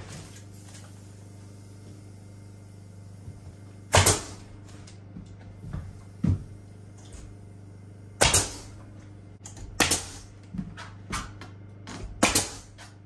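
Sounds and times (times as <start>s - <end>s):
pneumatic nailer firing: 3.9s - 4.5s, 8.2s - 8.8s, 9.8s - 10.3s, 12.2s - 12.8s.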